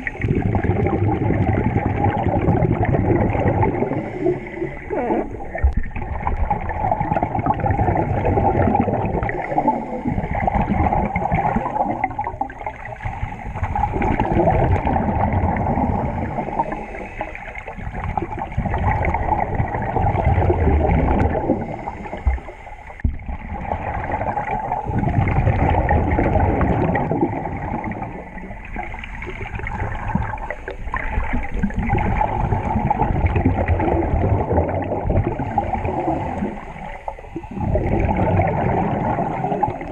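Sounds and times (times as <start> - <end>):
bubbles gurgling: 0.0 - 39.9
regulator breathing underwater: 3.4 - 5.7, 8.8 - 11.8, 13.0 - 18.4, 20.5 - 23.1.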